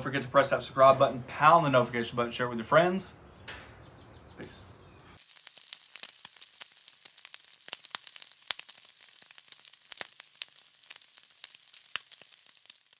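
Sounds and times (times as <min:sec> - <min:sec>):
bacon sizzling and popping: 0:05.2 - 0:12.9.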